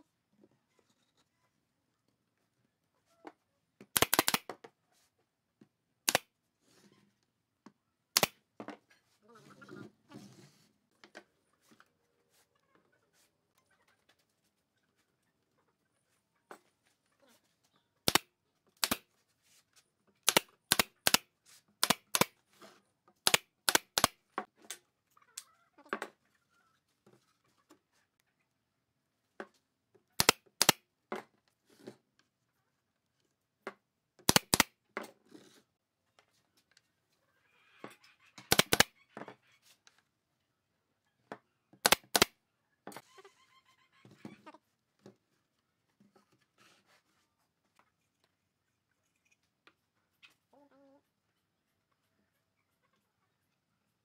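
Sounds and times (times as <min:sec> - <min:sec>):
nail gun firing into wood: 0:30.2 - 0:30.8, 0:34.3 - 0:34.7, 0:38.5 - 0:38.9, 0:41.8 - 0:42.3.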